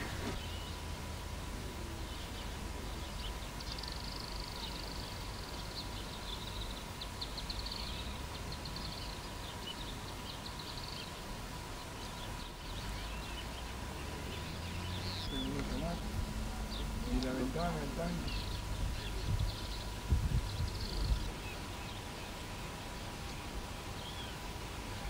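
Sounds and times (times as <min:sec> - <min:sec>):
low outdoor rumble: 0:00.0 - 0:25.0
small birds chirping: 0:00.0 - 0:25.0.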